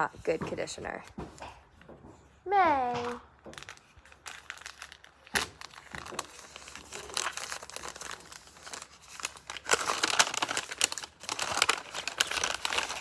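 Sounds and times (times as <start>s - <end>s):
paper crinkling and rustling: 3.4s - 13.0s.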